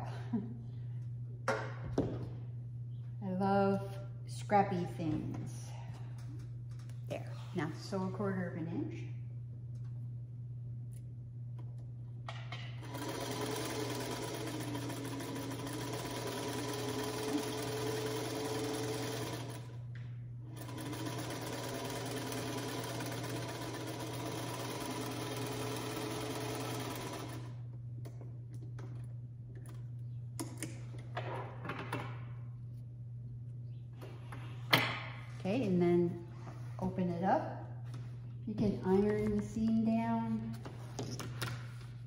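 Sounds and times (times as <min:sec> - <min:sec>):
sewing machine stitching: 0:12.8 - 0:19.8, 0:20.6 - 0:27.6.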